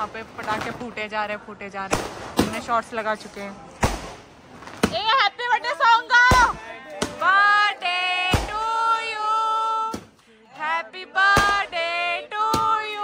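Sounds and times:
firecracker bangs: 0:01.9 - 0:02.8, 0:03.8 - 0:05.1, 0:11.3 - 0:11.9
high-pitched voices singing: 0:07.2 - 0:13.0.

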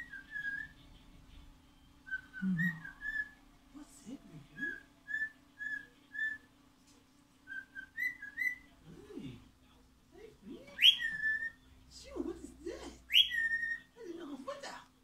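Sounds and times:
cockatiel whistling: 0:00.0 - 0:00.8, 0:02.0 - 0:03.4, 0:04.6 - 0:06.5, 0:07.5 - 0:08.7, 0:10.8 - 0:11.6, 0:13.1 - 0:13.9.

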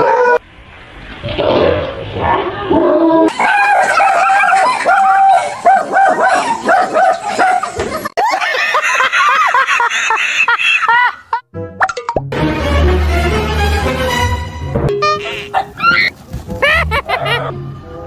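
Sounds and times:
dog barking and yipping: 0:03.3 - 0:07.9, 0:15.2 - 0:17.6
people laughing: 0:03.3 - 0:11.4, 0:16.4 - 0:17.6.

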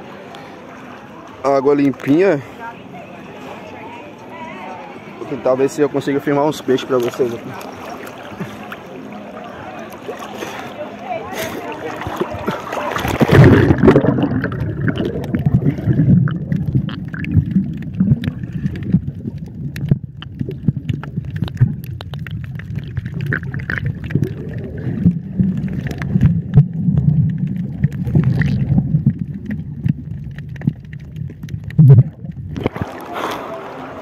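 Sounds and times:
underwater clicks and crackles: 0:06.7 - 0:08.9, 0:11.3 - 0:33.6
muffled underwater rumble: 0:11.6 - 0:34.0
camera splashing into water: 0:11.7 - 0:33.2.

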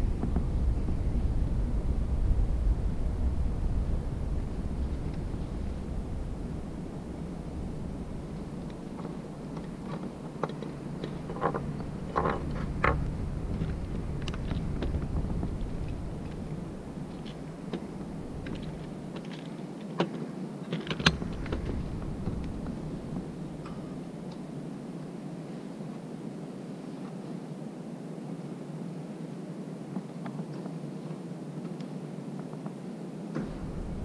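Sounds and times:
low background rumble: 0:00.0 - 0:26.4, 0:33.2 - 0:34.0.

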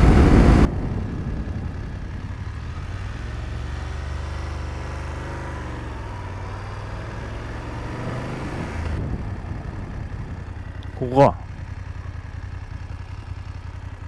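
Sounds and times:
motorcycle engine at low revs: 0:00.0 - 0:14.0.

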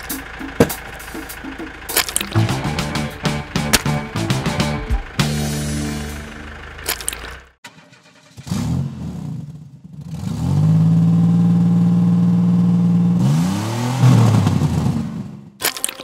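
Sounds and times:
toy tractor engine revving: 0:00.0 - 0:08.4.

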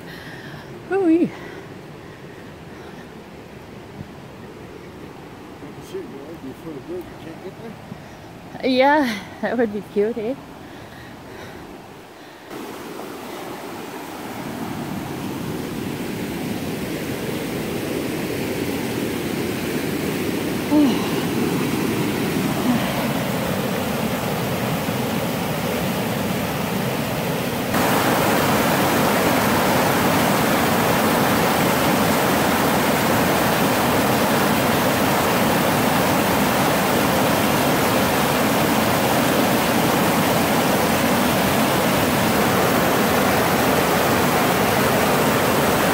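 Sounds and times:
river rapids rushing over rock: 0:12.5 - 0:45.9.

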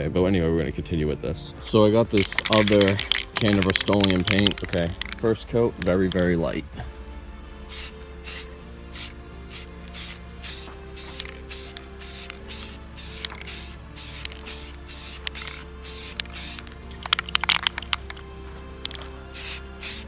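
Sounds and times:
spray can hissing bursts: 0:02.2 - 0:05.2, 0:07.7 - 0:18.2, 0:18.8 - 0:20.0
sharp clicks: 0:02.2 - 0:06.2, 0:15.2 - 0:18.2.

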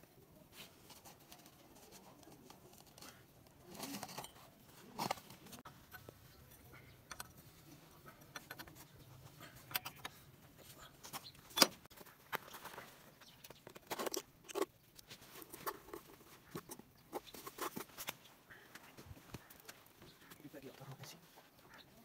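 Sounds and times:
plastic jug handled and opened: 0:00.6 - 0:05.7, 0:09.5 - 0:18.2.

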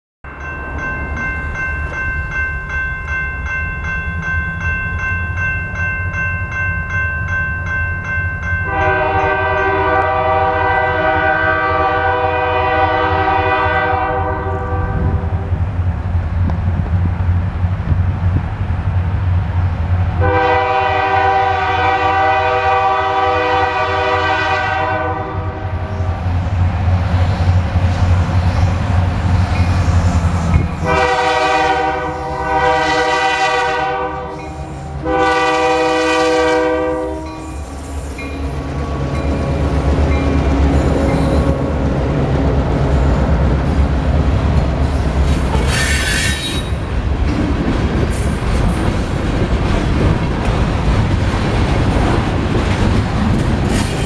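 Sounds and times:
diesel locomotive rumbling: 0:00.3 - 0:54.0
train air horn blasts: 0:08.7 - 0:15.5, 0:20.2 - 0:26.3, 0:30.6 - 0:37.8, 0:45.5 - 0:46.8.

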